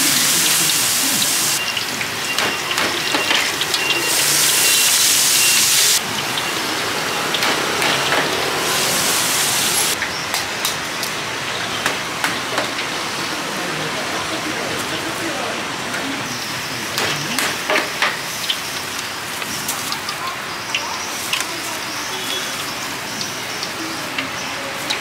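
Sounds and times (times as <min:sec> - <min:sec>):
food deep-frying in hot oil: 0:00.0 - 0:15.6, 0:16.2 - 0:25.0.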